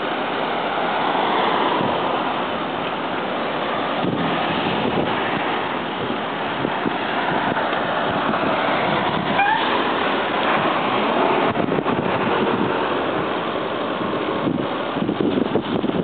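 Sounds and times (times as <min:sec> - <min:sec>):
wind rushing over microphone: 0:00.0 - 0:16.0
rising squeak: 0:09.3 - 0:09.8.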